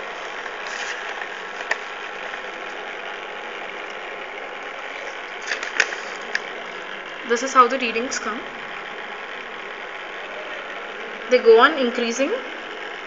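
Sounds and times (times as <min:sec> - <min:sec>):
whirring machine: 0:00.0 - 0:13.0.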